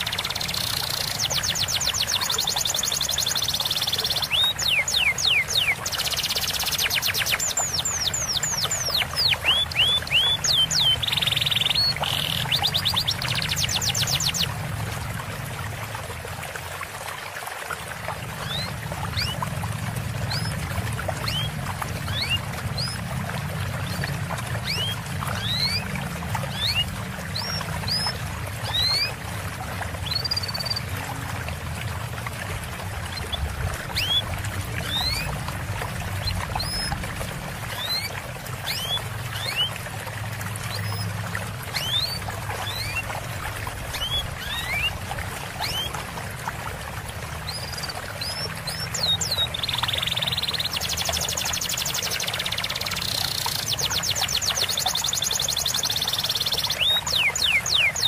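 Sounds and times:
running water trickling: 0:00.0 - 0:58.0
songbirds chirping: 0:47.4 - 0:58.0.

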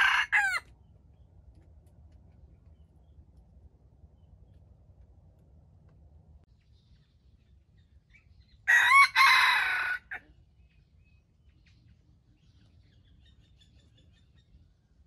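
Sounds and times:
rooster crowing: 0:00.0 - 0:00.7, 0:08.7 - 0:10.2.

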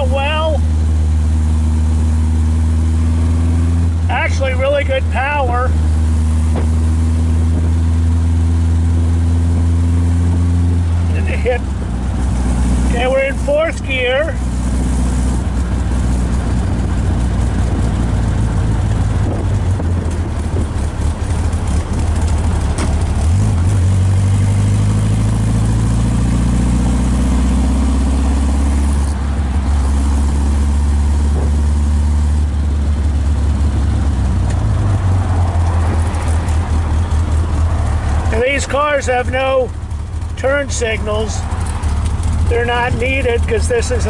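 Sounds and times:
car engine running: 0:00.0 - 0:44.0.

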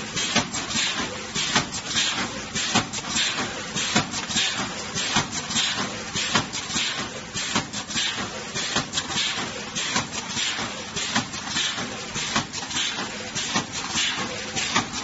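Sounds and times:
mechanical clicks and clacks: 0:00.0 - 0:15.0.

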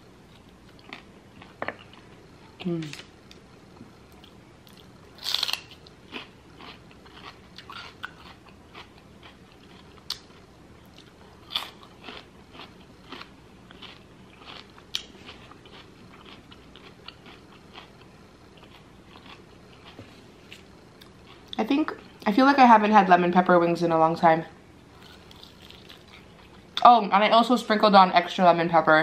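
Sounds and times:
celery crunching: 0:04.2 - 0:21.6, 0:25.0 - 0:26.6.

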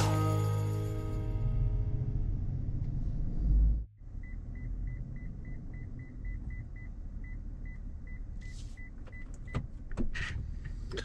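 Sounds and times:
low rumble: 0:00.0 - 0:08.2
reverse parking sensor beeping: 0:04.1 - 0:09.7.

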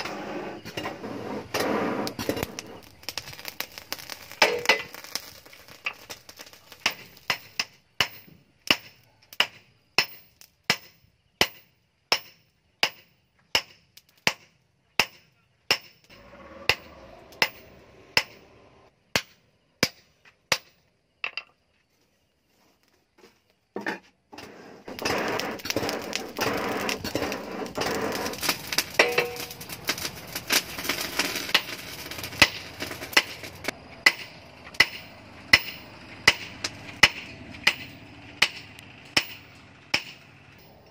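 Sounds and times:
hammer striking steel on anvil: 0:06.8 - 0:18.5, 0:29.0 - 0:29.4, 0:34.0 - 0:40.7.

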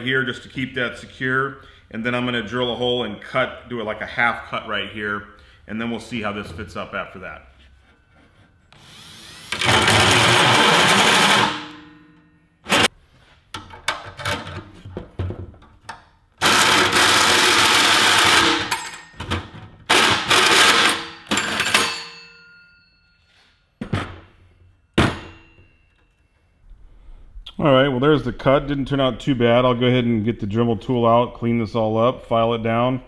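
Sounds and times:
drill hole saw cutting aluminum: 0:08.7 - 0:11.8, 0:16.4 - 0:18.8.

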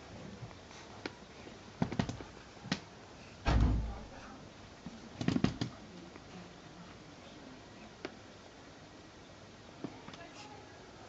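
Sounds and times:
dull deep thump: 0:03.5 - 0:04.0.

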